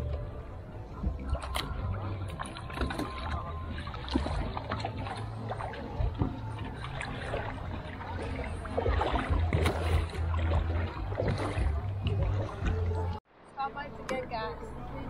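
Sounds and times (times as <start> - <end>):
water lapping against boat hull: 0.0 - 13.2
small splashes: 1.2 - 13.2.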